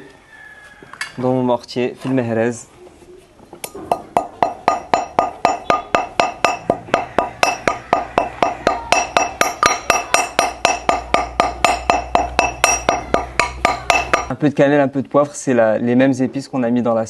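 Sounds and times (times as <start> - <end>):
pestle striking metal mortar: 3.6 - 14.4.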